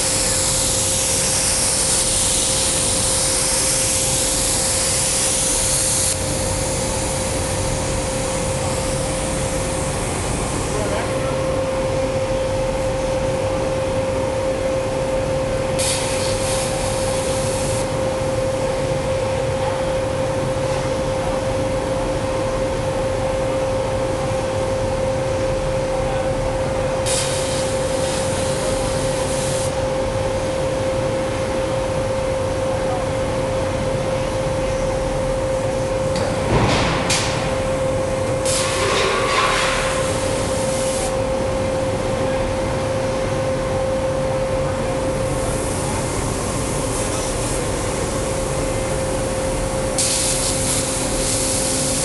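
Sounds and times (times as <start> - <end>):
plasma cutter hiss and whine: 0.0 - 11.3, 15.8 - 18.8, 27.0 - 30.6, 36.1 - 41.2, 45.2 - 52.0.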